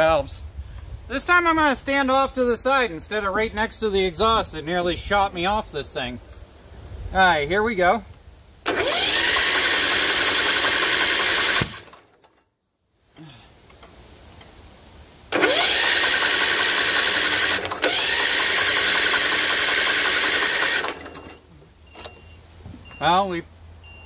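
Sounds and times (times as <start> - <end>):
electric starter cranking engine: 8.6 - 12.4, 15.3 - 21.5.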